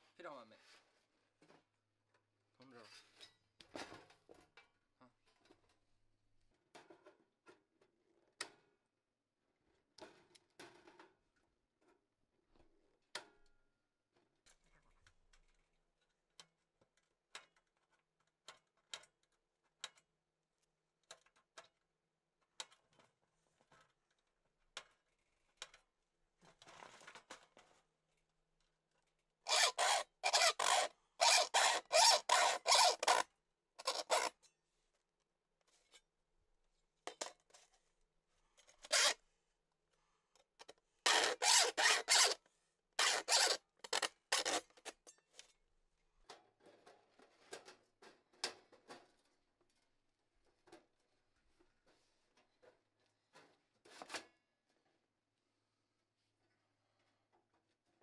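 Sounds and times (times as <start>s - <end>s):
file rasping on steel sheet: 29.5s - 33.2s, 33.8s - 34.4s, 41.1s - 42.4s, 43.0s - 43.6s.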